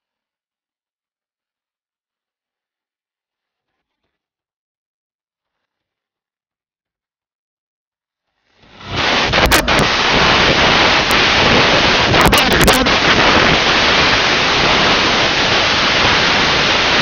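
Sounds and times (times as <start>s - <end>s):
loud steady rushing hiss: 8.6s - 17.0s
sharp crackles: 8.6s - 17.0s.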